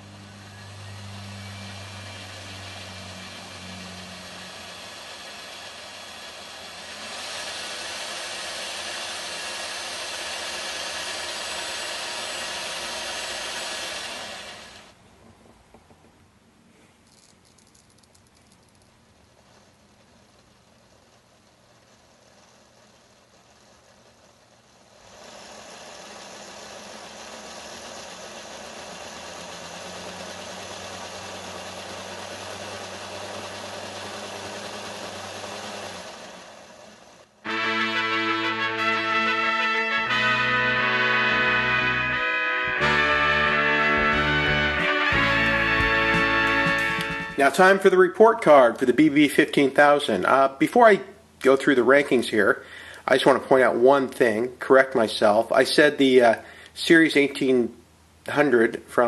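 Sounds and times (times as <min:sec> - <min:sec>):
model locomotive motor whirring: 0:00.0 - 0:15.0, 0:17.0 - 0:47.9.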